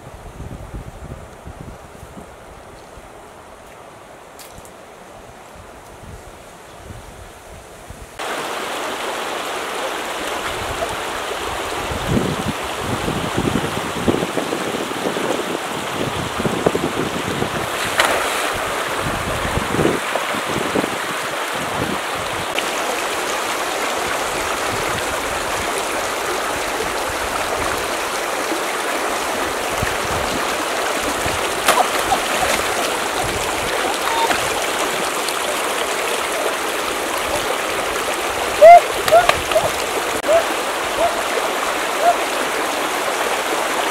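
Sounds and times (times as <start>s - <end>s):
river rushing over stones: 8.2s - 43.9s
feet wading splashes: 17.6s - 19.0s, 30.0s - 42.8s.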